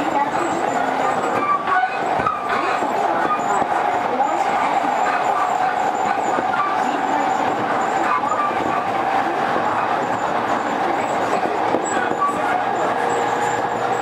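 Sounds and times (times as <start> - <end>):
constant tone: 0.0 - 14.0
train wheels on rail: 0.0 - 14.0.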